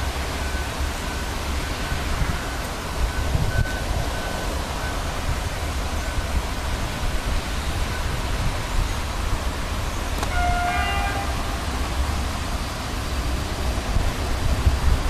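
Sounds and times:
locomotive rumble: 0.0s - 15.0s
two-note horn blast: 10.2s - 11.9s.

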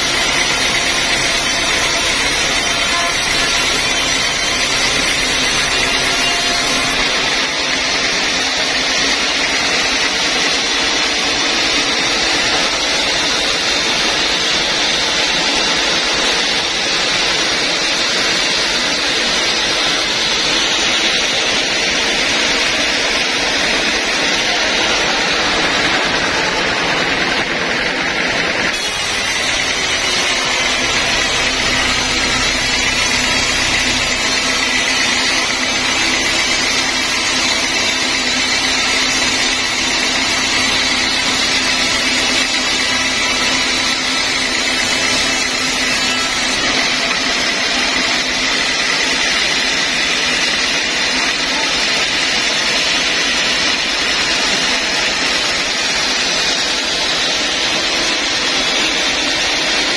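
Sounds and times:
bandsaw cutting log: 0.0s - 59.9s.

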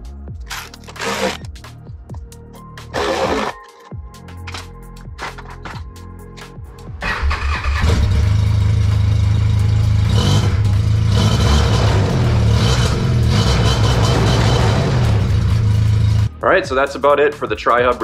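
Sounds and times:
music with a beat: 0.0s - 7.0s, 16.2s - 18.0s.

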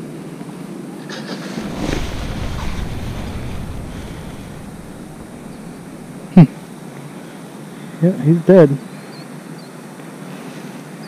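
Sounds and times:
wind buffeting microphone: 1.4s - 6.7s.

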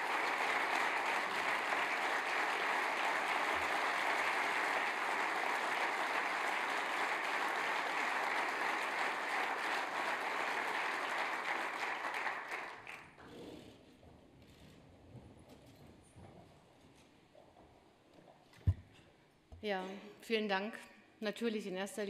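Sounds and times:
large audience applauding: 0.0s - 13.2s.

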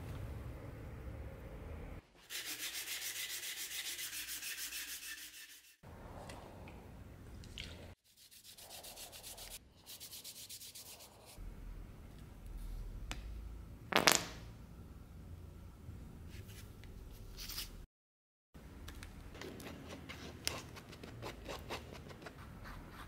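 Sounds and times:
hand-sanding wood: 2.2s - 5.8s, 8.1s - 11.4s.

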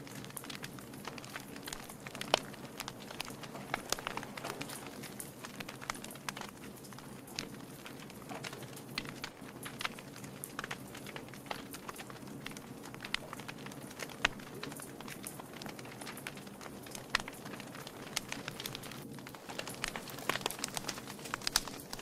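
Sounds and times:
wood logs burning and crackling: 0.0s - 22.0s.

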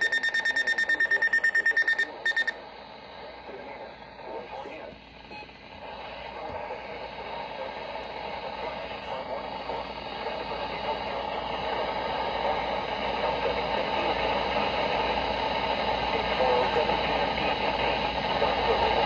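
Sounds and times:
radio static hiss: 0.0s - 14.8s.

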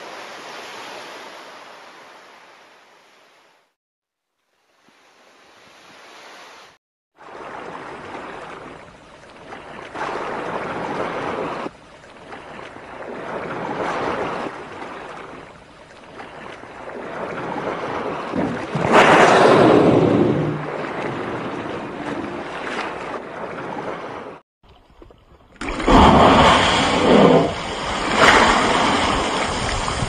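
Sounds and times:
rushing water-like noise: 0.0s - 3.3s, 25.6s - 30.0s
whale blowhole blowing: 17.7s - 22.1s, 25.7s - 30.0s.

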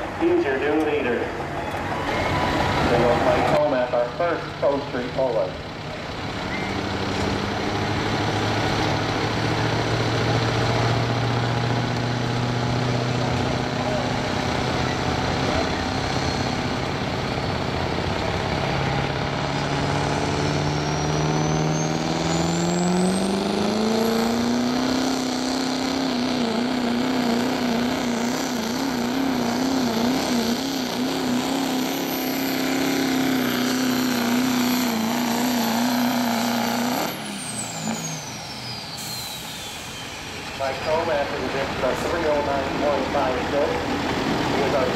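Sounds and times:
diesel engine working hard: 0.0s - 44.9s.

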